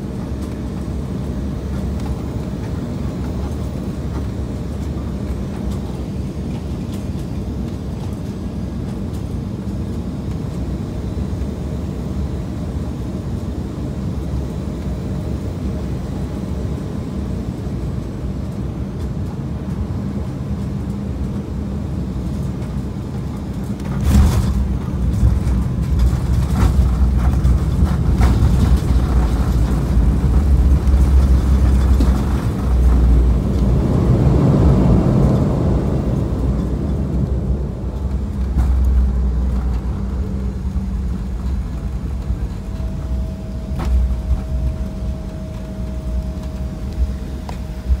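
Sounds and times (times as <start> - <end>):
aircraft engine noise: 0.0 - 48.0
steady whine: 0.0 - 48.0
wheels on wet runway: 14.3 - 48.0.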